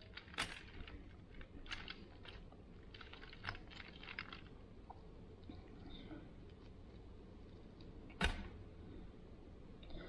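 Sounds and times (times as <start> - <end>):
roasted chicken skin crackling: 0.0 - 4.6.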